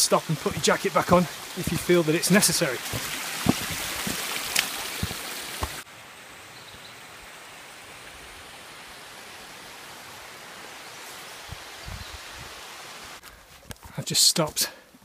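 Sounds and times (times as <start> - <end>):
footsteps on leaf litter: 2.8 - 5.8.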